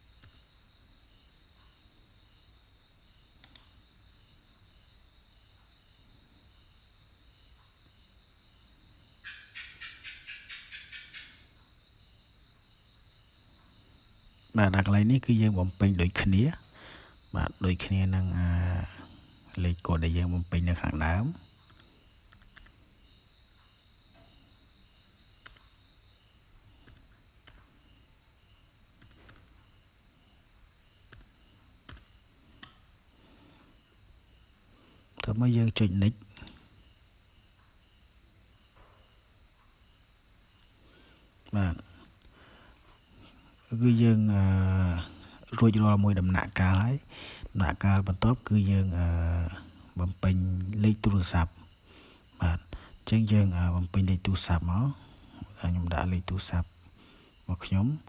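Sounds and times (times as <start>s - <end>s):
crickets chirring: 0.0s - 58.0s
mouse click: 0.2s - 0.5s, 3.4s - 3.7s, 21.7s - 22.7s, 25.4s - 25.7s
keyboard typing: 21.7s - 22.8s, 25.4s - 25.7s, 26.8s - 27.7s, 29.0s - 29.5s, 31.1s - 32.1s.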